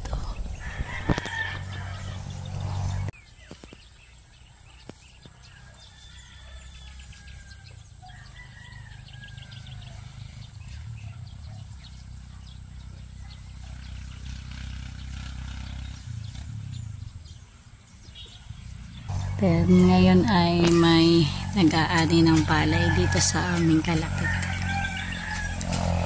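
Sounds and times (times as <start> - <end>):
low rumble: 0.0 - 3.1, 18.5 - 26.0
small birds chirping: 0.0 - 26.0
rooster crowing: 0.6 - 3.1, 5.4 - 10.3, 19.1 - 26.0.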